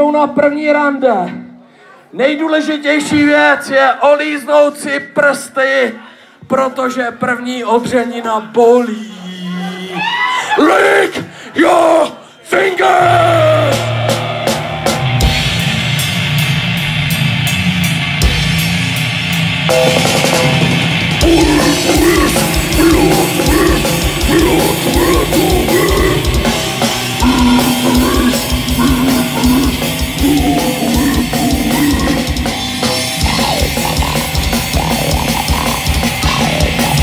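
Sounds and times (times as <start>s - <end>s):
distorted bass guitar: 13.2s - 37.0s
fast hard drums: 13.4s - 37.0s.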